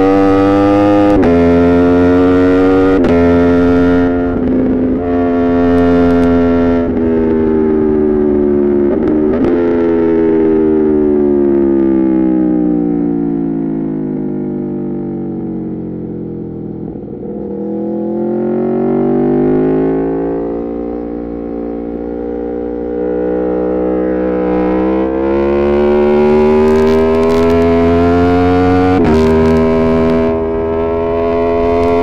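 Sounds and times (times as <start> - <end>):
motorcycle engine revving: 0.0 - 12.3, 15.2 - 32.0.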